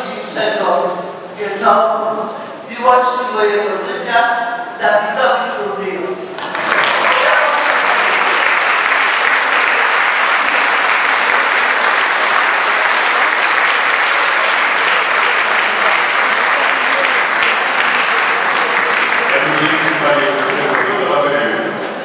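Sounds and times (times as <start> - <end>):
large audience applauding: 6.4 - 21.7.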